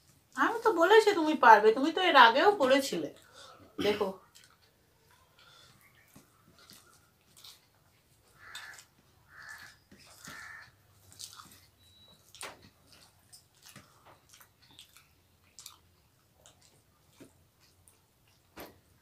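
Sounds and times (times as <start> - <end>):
chewing and mouth smacks: 4.2 - 19.0.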